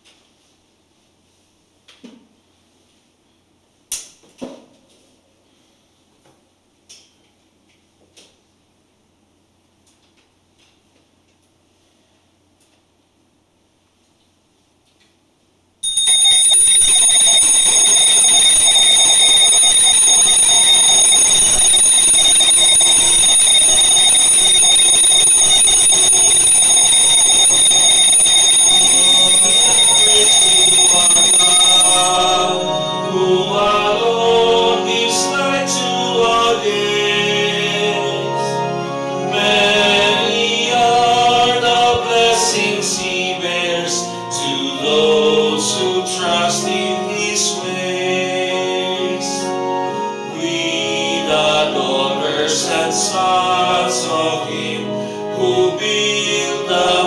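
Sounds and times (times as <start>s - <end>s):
high-pitched ringing tone: 15.8s - 34.1s
instrumental accompaniment: 30.8s - 35.2s
people singing a hymn: 32.1s - 57.0s.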